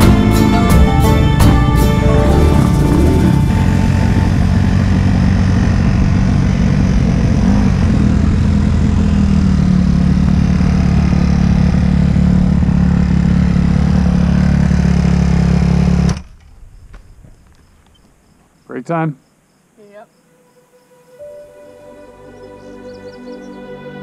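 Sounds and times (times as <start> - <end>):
dirt bike engine idling: 0.0 - 18.4.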